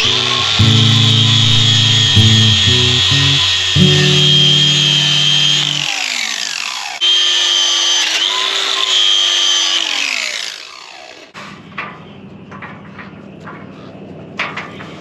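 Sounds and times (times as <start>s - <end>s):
angle grinder whining on metal: 0.0s - 11.4s.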